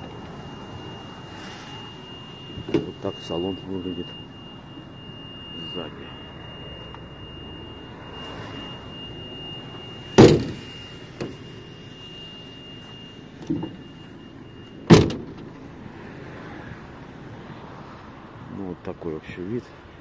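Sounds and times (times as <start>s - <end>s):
faint high-pitched tone: 0.0s - 15.9s
loud metal bangs: 10.2s - 11.4s.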